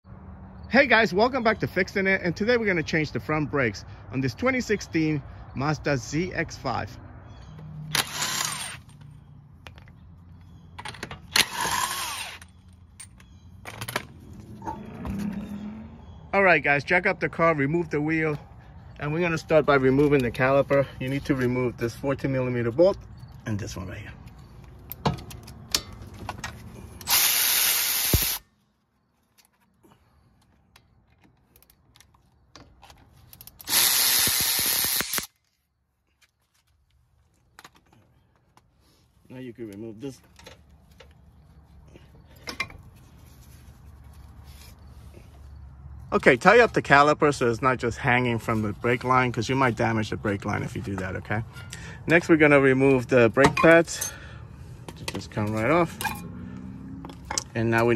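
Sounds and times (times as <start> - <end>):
impact wrench bursts: 7.9 - 8.9, 11.3 - 12.5, 27.0 - 28.4, 33.6 - 35.3
electric ratchet spinning bolts: 7.9 - 9.0, 11.3 - 12.5, 27.0 - 28.4, 33.5 - 35.3.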